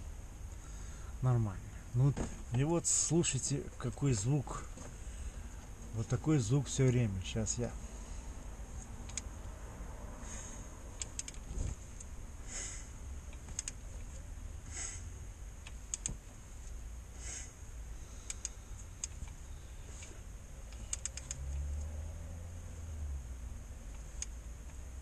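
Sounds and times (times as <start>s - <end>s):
sharp metallic clicks and knocks: 11.0s - 12.1s, 13.3s - 13.8s, 15.6s - 16.3s, 20.7s - 21.9s.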